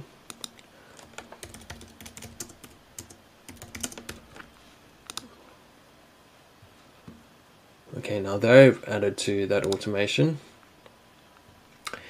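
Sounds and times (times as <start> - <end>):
keyboard typing: 0.3 - 4.5.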